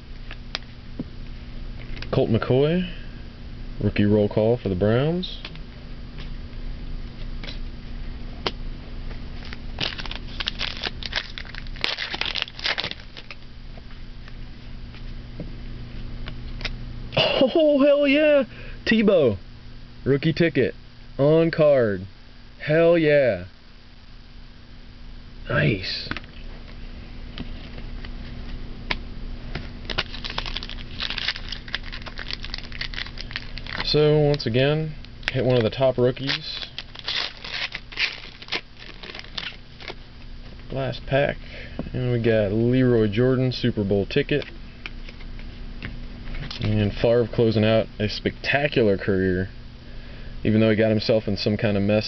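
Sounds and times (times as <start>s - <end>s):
wrapper crinkling and tearing: 9.4s - 13.4s, 29.8s - 34.0s, 35.2s - 40.0s.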